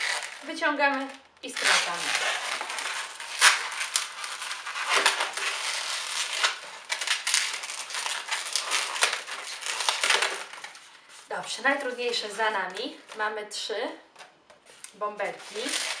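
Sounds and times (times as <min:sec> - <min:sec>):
balloon rubber squeaking: 0:00.0 - 0:10.6.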